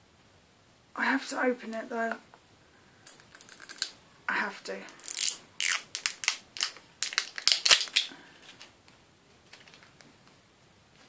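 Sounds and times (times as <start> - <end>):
plastic cap clicking and crackling: 3.0 - 4.0, 5.0 - 8.7.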